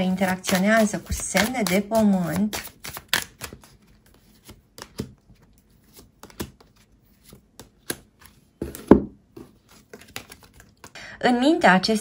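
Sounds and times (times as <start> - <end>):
cards clicking and snapping: 5.9 - 8.1, 9.7 - 10.9.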